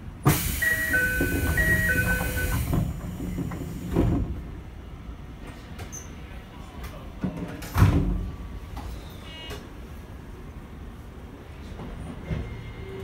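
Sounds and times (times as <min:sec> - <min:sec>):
loud hiss of doors: 0:00.2 - 0:04.3
sliding doors thud shut: 0:00.2 - 0:04.4
two-tone door chime: 0:00.6 - 0:02.7.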